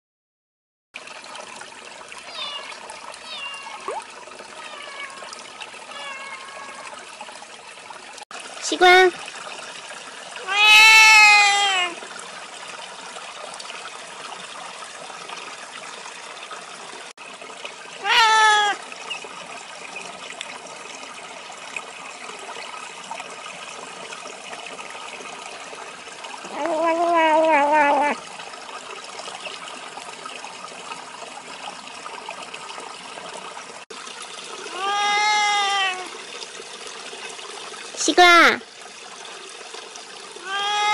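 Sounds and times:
stream trickling: 1.0s - 40.9s
cat meowing: 2.3s - 3.9s, 4.6s - 5.3s, 5.9s - 6.9s, 10.4s - 12.0s, 18.0s - 18.8s, 26.5s - 28.2s, 34.7s - 36.1s, 40.4s - 40.9s.

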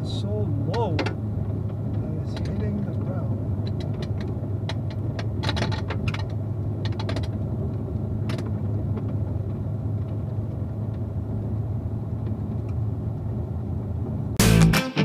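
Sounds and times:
car engine and tyres droning: 0.0s - 14.7s
stones clicking under tyres: 0.8s - 11.5s.

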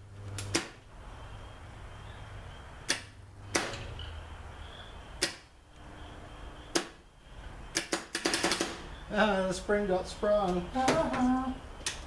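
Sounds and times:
sharp arcing snaps: 0.3s - 0.9s, 2.8s - 3.9s, 5.2s - 5.8s, 6.7s - 7.0s, 7.7s - 8.9s.

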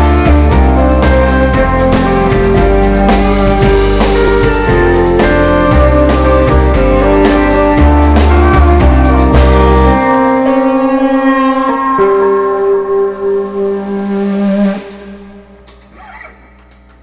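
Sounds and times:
rock band drums: 0.0s - 12.8s
guitars and keyboard chord ringing: 0.0s - 15.7s.

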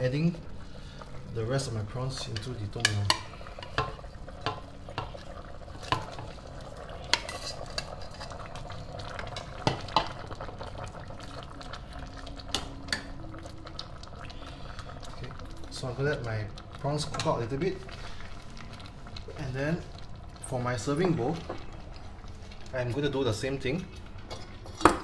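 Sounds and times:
ladle stirring soup in a pot: 0.4s - 15.4s.

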